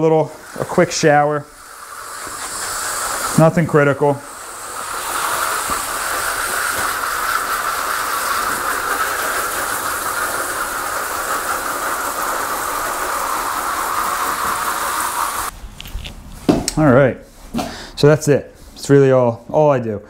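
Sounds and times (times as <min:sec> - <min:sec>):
hose spraying water onto soil: 0:00.0 - 0:15.5.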